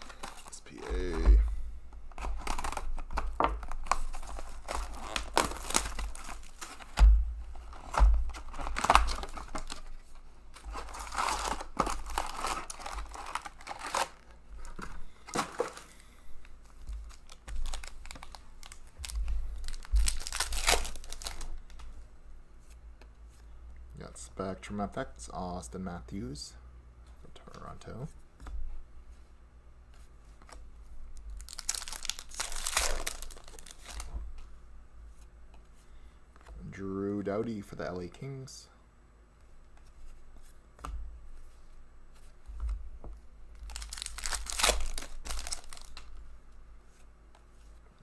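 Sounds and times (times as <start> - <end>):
foil packs crinkling: 0.0 - 1.2, 2.1 - 7.0, 10.6 - 16.0, 17.0 - 21.7, 31.4 - 34.1, 43.6 - 46.2.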